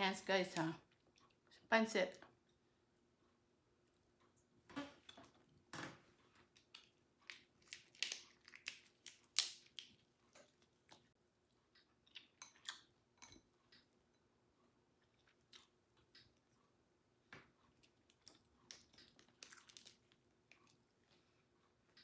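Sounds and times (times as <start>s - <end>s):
chewing: 6.4s - 13.9s, 14.9s - 16.7s, 17.6s - 22.0s.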